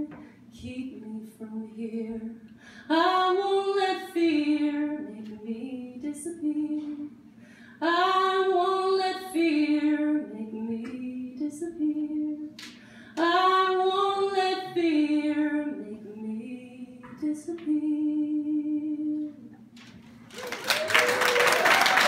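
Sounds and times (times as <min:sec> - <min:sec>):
woman singing unaccompanied: 0:00.0 - 0:07.2, 0:07.8 - 0:12.6, 0:13.2 - 0:19.5
audience applause: 0:20.3 - 0:22.0.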